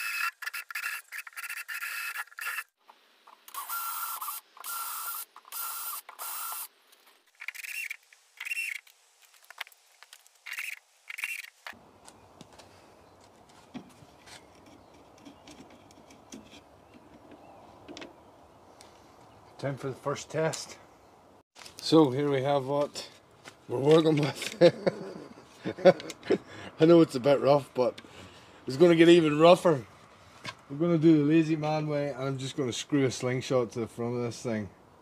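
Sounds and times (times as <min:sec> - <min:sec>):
cordless drill boring into wood: 0:00.0 - 0:02.7, 0:03.5 - 0:06.7
drill driving screws into metal: 0:03.5 - 0:06.7.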